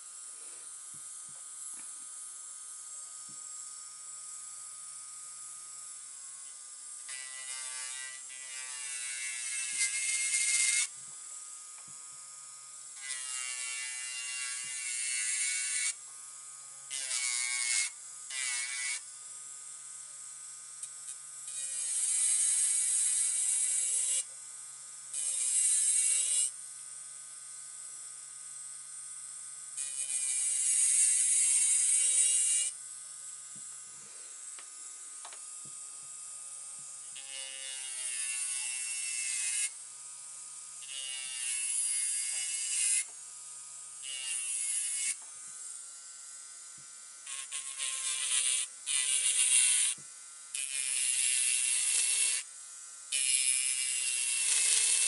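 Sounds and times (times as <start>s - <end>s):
electric nail drill whining: 0.0s - 27.0s, 27.6s - 55.0s
drill bit grinding on nail: 6.2s - 11.2s, 12.8s - 16.2s, 16.9s - 19.1s, 20.8s - 24.4s, 25.1s - 26.6s, 29.8s - 32.8s, 36.0s - 39.9s, 40.8s - 45.8s, 47.2s - 52.5s, 53.1s - 55.0s.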